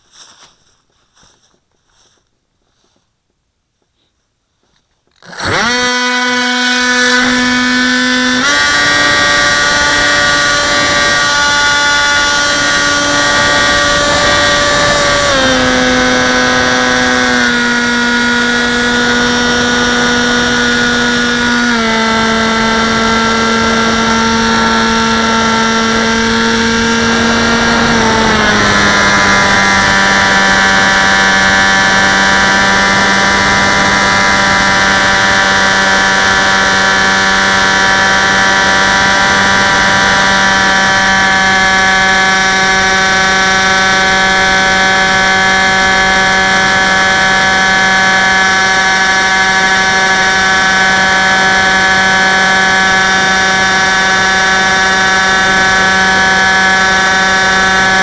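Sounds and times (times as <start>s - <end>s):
electric motor and propeller whining: 5.1s - 58.0s.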